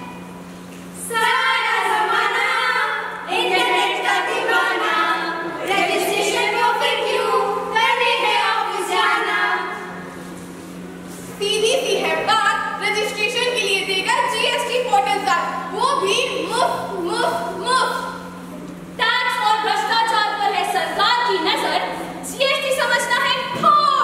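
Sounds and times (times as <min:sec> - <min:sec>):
group singing without instruments: 0:01.1 - 0:10.0.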